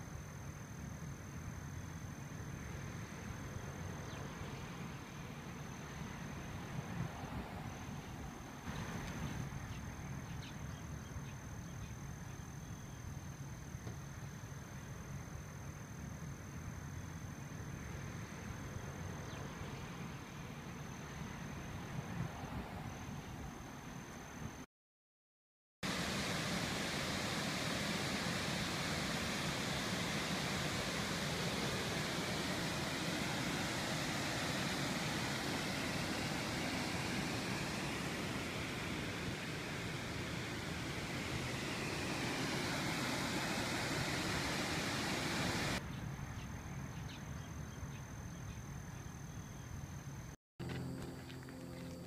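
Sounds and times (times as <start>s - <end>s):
high-pitched whine: 25.9s - 45.8s
waterfall rushing over rock: 25.9s - 45.8s.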